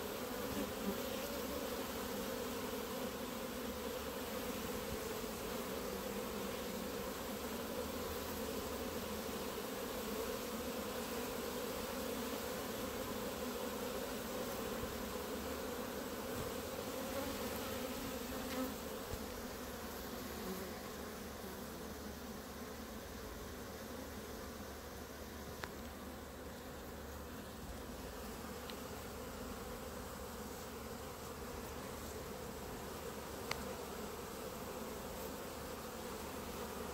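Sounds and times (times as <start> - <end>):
honeybees buzzing: 0.0 - 36.9.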